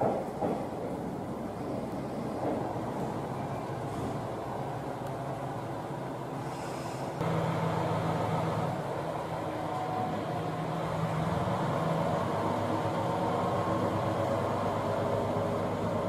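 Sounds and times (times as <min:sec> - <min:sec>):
diesel railcar engine droning: 0:00.0 - 0:16.0.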